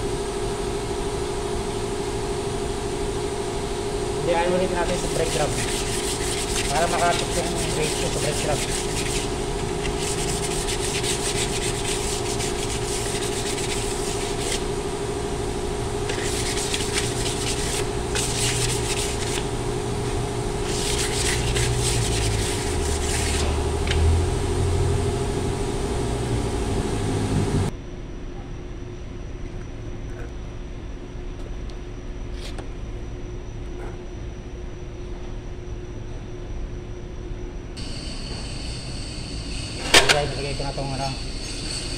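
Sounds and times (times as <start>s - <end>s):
steady machine hum: 0.0s - 41.9s
scratchy rubbing on steel drum: 4.2s - 14.9s, 16.0s - 24.2s.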